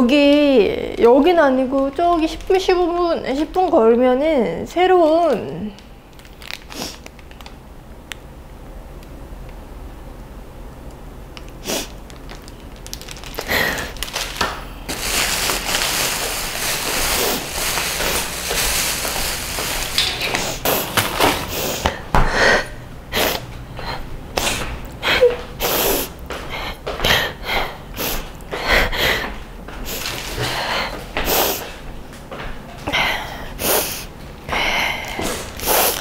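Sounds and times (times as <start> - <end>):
person sniffling: 21.5 - 31.7, 32.9 - 36.0.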